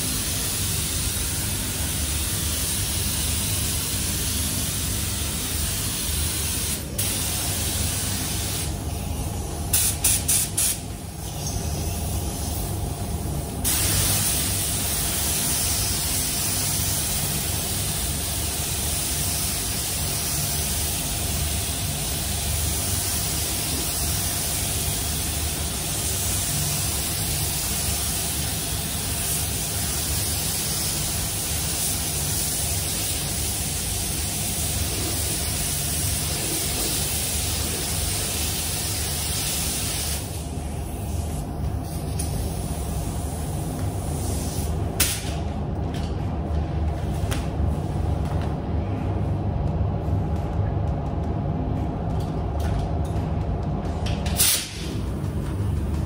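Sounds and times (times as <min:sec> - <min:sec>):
spray gun hissing: 0:00.0 - 0:12.6, 0:13.6 - 0:45.2.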